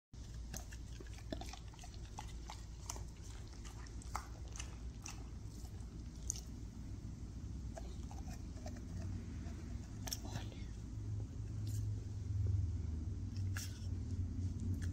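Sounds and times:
dog chewing ice cream bar: 0.2 - 7.0, 7.7 - 10.6
steady low hum: 0.2 - 14.9.

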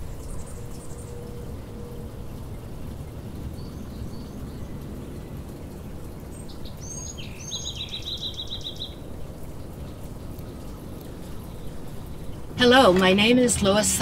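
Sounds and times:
low outdoor background rumble: 0.0 - 14.0
songbird singing and trilling: 6.3 - 9.0.

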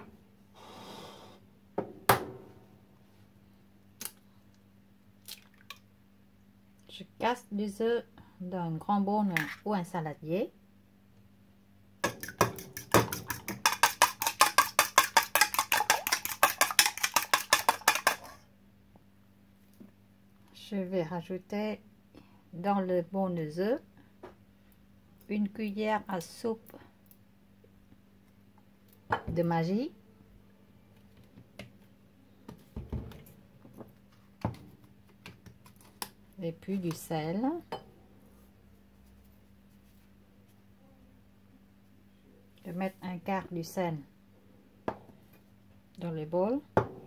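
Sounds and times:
fork beating eggs in bowl: 12.0 - 18.4
bottles knocking on countertop: 46.8 - 47.0.

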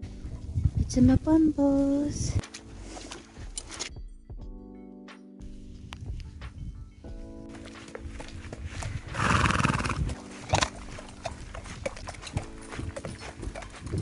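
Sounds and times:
horse hooves on wet tarmac: 7.6 - 14.0
horse whinnying: 9.1 - 10.8.

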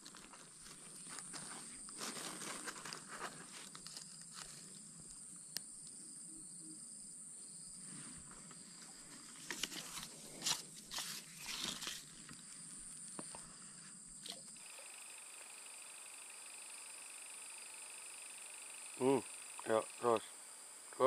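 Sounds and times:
rustling and crackling: 0.0 - 4.8, 8.4 - 12.6
high-pitched insect buzzing: 12.9 - 21.0.

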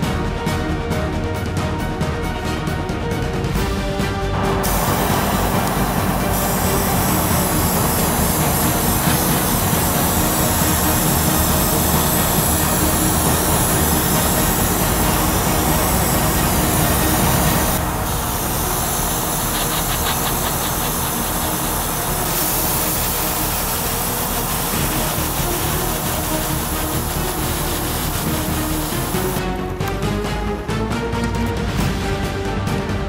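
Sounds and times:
airbrush hiss of air: 4.5 - 29.4.

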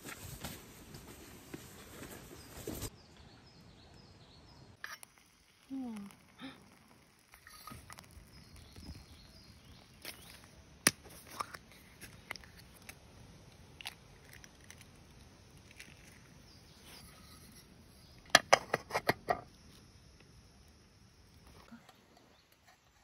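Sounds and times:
faint birdsong: 1.3 - 13.6, 15.6 - 23.0
camping pot and stove clicks: 18.2 - 19.5.

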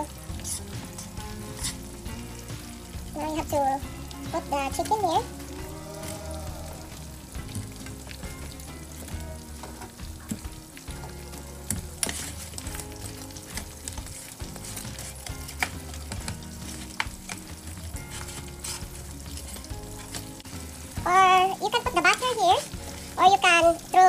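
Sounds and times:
chicken deep-frying in oil: 0.0 - 24.0.

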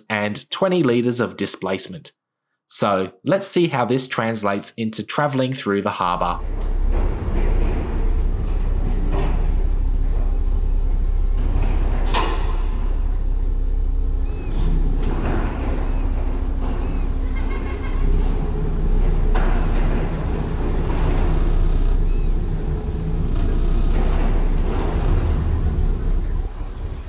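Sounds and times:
diesel engines rumbling: 6.3 - 27.0
wind: 6.4 - 27.0.

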